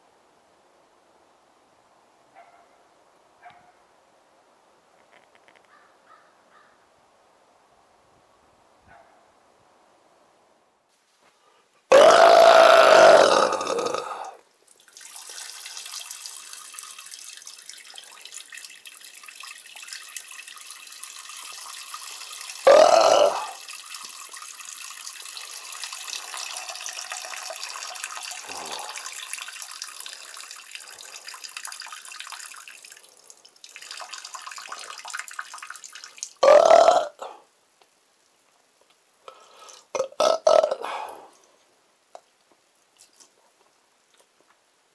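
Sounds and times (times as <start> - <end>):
loud burps: 11.9 - 14.4, 22.6 - 23.6, 36.4 - 37.4, 39.9 - 41.1.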